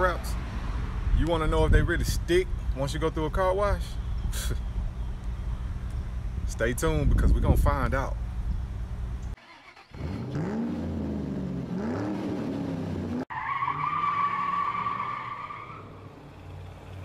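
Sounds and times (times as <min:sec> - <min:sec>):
car engine revving: 0:10.0 - 0:14.5
tire squeal: 0:13.3 - 0:16.3.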